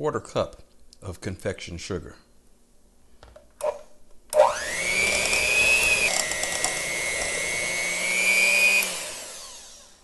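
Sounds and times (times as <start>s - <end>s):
electric hand mixer whining: 4.4s - 10.0s.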